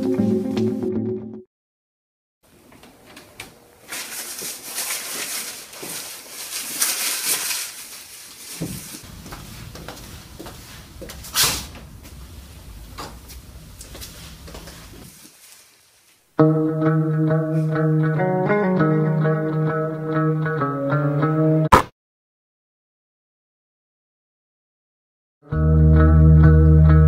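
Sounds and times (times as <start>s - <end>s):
footsteps on tiled floor: 0.0s - 0.9s, 2.6s - 6.9s, 7.8s - 16.3s
low rumble: 9.0s - 14.5s
hiss: 11.3s - 11.8s.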